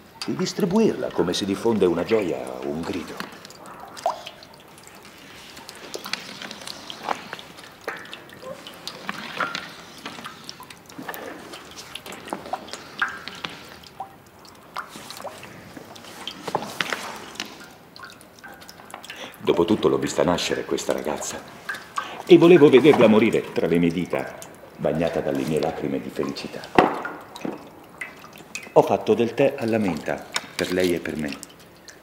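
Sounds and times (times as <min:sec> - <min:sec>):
water drops plinking: 0:00.0 - 0:32.0.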